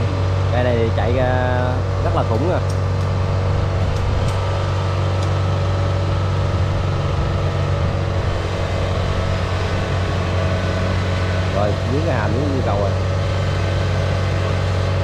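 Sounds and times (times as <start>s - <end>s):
combine harvester diesel engine: 0.0s - 15.0s.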